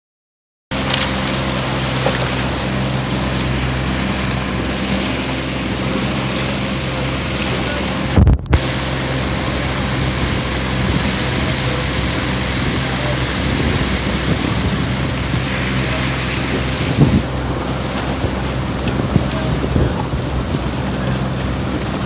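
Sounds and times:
motorboat engine humming: 0.7 - 22.0
wind noise on microphone: 7.9 - 22.0.

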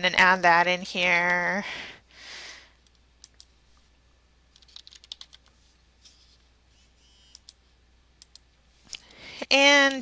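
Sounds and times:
typing on computer keyboard: 4.6 - 5.5.

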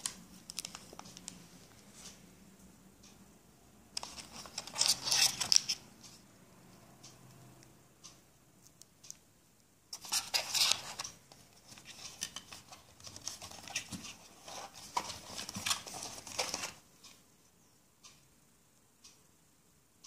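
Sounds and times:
cardboard and plastic rustling: 4.0 - 5.8, 10.0 - 16.8.

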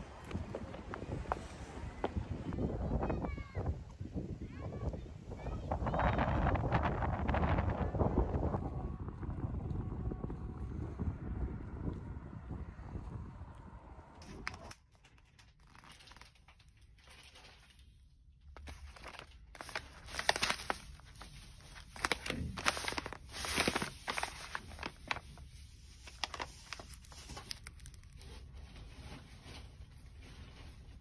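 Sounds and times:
packets crinkling: 14.2 - 28.9.

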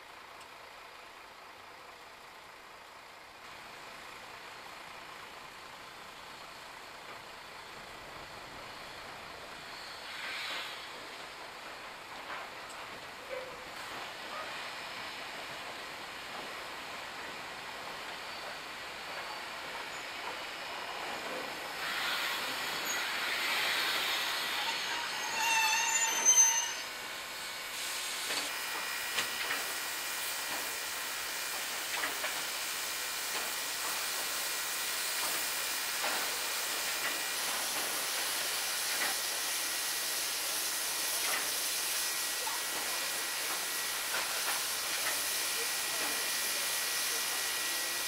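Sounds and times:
steam hissing: 7.9 - 48.0
locomotive brake squeal: 9.5 - 11.0, 18.2 - 28.5.

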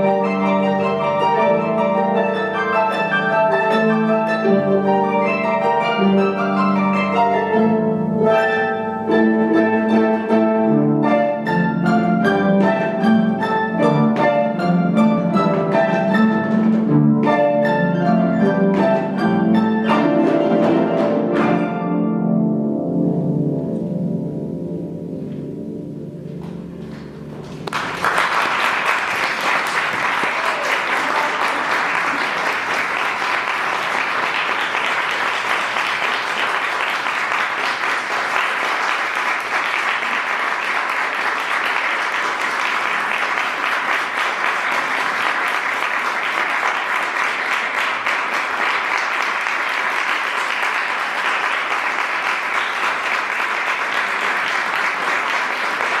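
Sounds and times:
audience applauding: 26.9 - 56.0.

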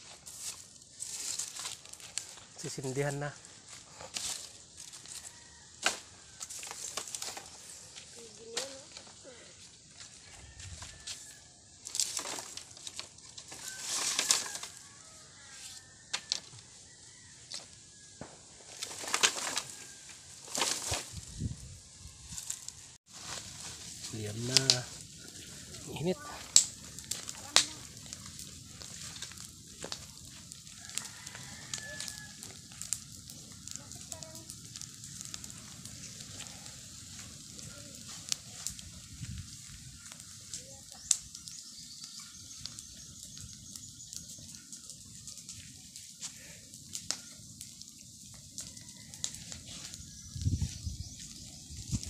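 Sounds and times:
dry leaves rustling and crackling: 0.0 - 52.0
fire hissing: 0.0 - 52.0
twigs snapping: 4.0 - 7.7, 11.8 - 14.8, 18.7 - 21.2, 26.4 - 35.6.

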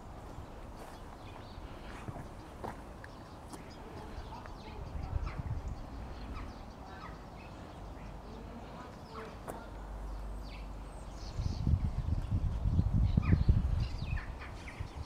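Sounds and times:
small birds chirping: 0.0 - 15.0
buffeting rumble on microphone: 11.3 - 15.0.

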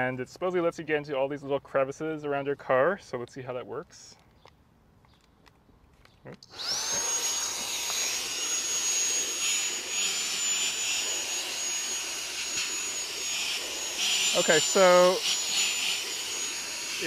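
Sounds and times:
handheld vacuum whining: 6.4 - 17.0.

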